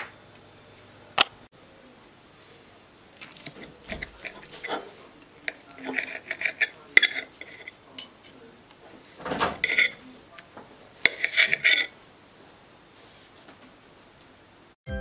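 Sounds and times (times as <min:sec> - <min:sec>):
cutlery scraping on plate: 0:03.2 - 0:08.4, 0:09.2 - 0:10.1, 0:11.0 - 0:12.0.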